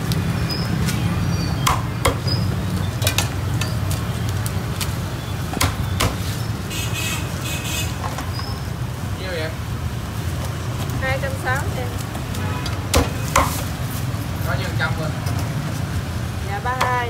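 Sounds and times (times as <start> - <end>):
cleaver chopping on wooden block: 1.6 - 2.3, 5.5 - 6.2, 12.9 - 13.6.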